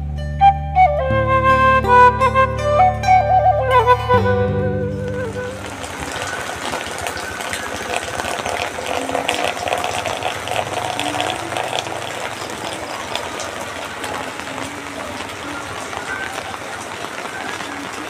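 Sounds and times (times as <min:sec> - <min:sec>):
rushing water: 0:05.0 - 0:18.0.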